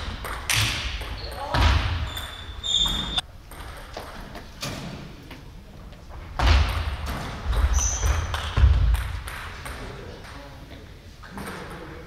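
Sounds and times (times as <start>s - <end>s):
sneakers squeaking: 0.1s - 5.0s, 7.2s - 8.9s.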